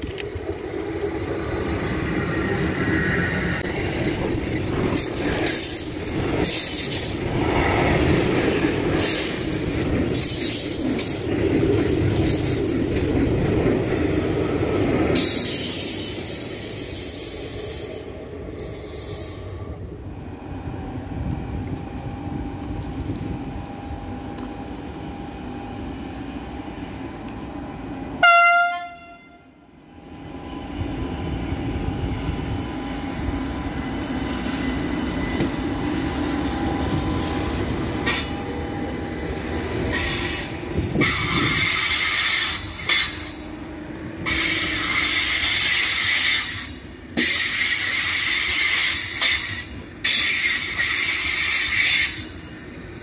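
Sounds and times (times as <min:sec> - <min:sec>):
train running into station: 0:00.0 - 0:53.0
high-pitched brake squealing: 0:15.2 - 0:19.8
train horn blast: 0:28.2 - 0:29.6.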